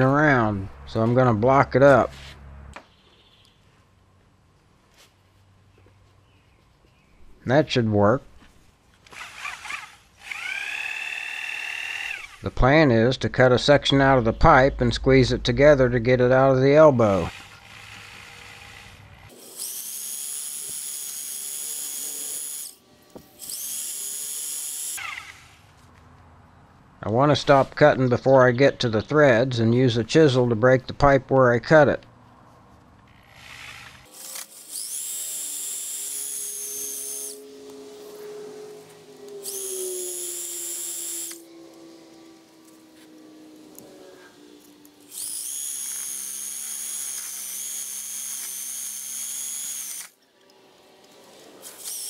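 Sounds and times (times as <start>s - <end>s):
reciprocating saw cutting metal pipe: 33.3s - 44.4s.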